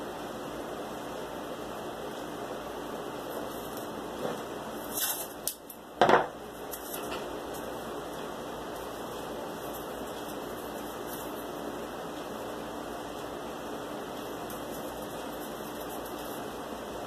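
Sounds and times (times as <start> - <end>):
masking tape crackling: 6.5 - 17.0.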